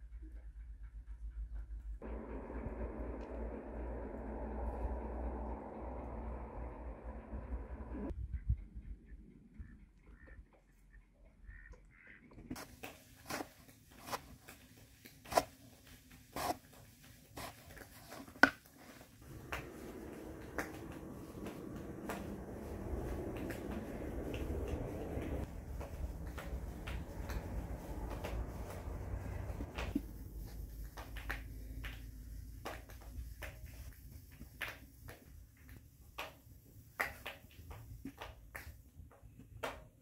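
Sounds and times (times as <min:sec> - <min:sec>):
hands rubbing dough in flour: 0:12.6 - 0:35.4.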